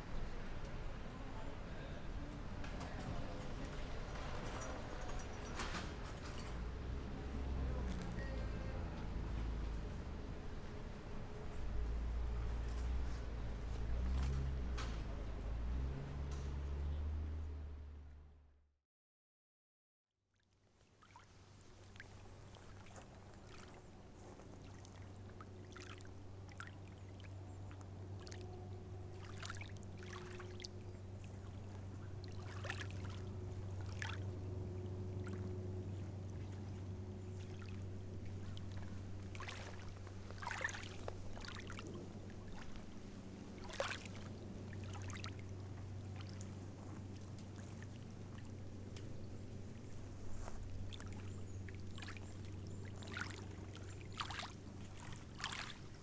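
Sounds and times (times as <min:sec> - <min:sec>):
lake water lapping and splashing: 0:12.5 - 0:14.6, 0:20.4 - 0:56.0
steady low hum: 0:21.4 - 0:56.0.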